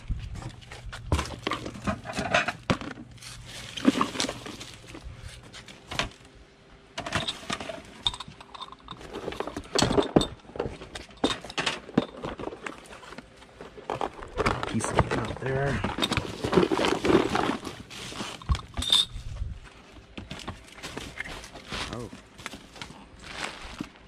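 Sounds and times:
rummaging through cardboard box: 0.0s - 6.2s, 9.0s - 19.0s, 20.0s - 24.0s.

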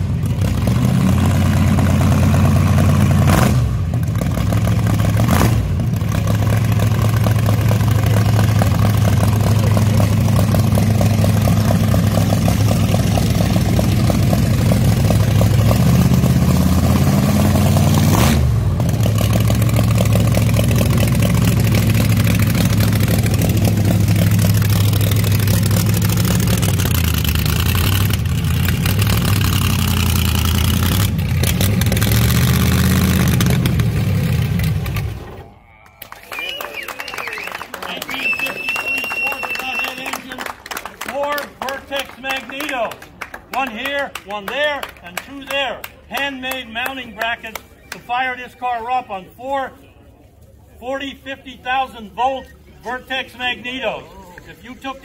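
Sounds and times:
loud dragster engine idling: 0.0s - 18.1s, 18.8s - 35.5s.

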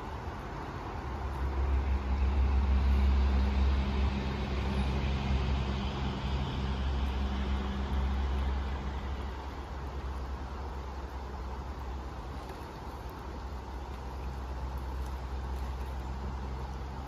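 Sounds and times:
fast river water rushing: 0.0s - 17.0s
vehicle engine humming: 0.0s - 17.0s.

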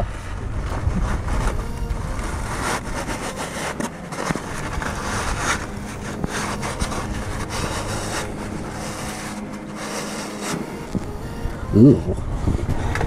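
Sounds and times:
steady low hum: 0.0s - 13.0s
paper towel rubbing metal: 0.6s - 11.9s.

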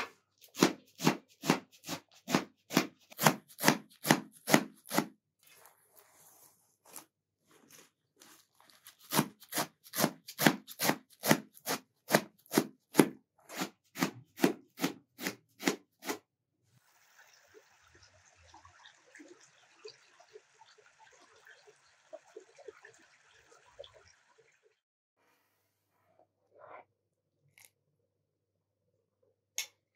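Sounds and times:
knife chopping on metal tray: 0.0s - 5.1s, 9.1s - 16.2s
small stream trickling: 16.9s - 24.8s.

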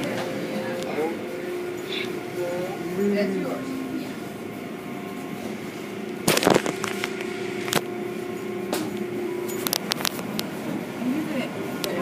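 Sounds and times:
car wash machinery humming: 0.0s - 12.0s
loud burst of noise: 6.2s - 7.7s.

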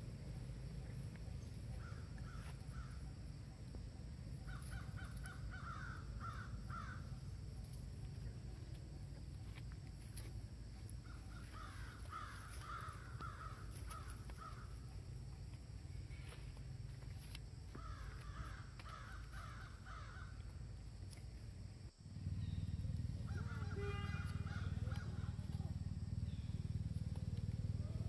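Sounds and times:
steady low rumble: 0.0s - 18.8s.

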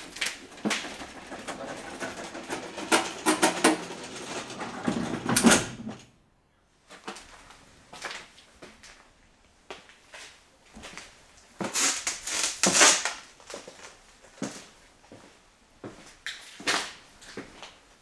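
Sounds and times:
rattling clatter in railway car: 0.0s - 6.1s.

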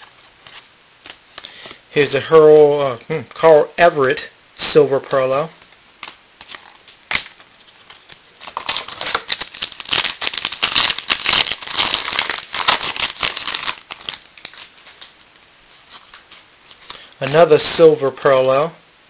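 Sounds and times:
foil wrapper crinkling: 6.0s - 17.1s.

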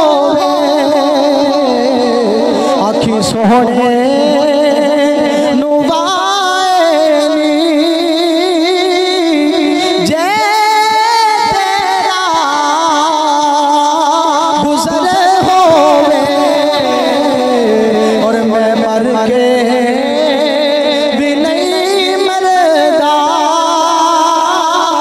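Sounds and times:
man singing into a microphone: 0.0s - 25.0s.

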